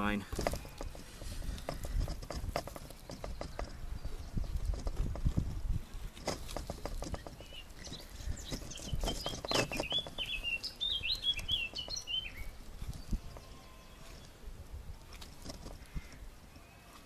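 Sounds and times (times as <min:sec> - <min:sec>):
small bird chirping: 0:00.6 - 0:05.4, 0:06.2 - 0:14.4.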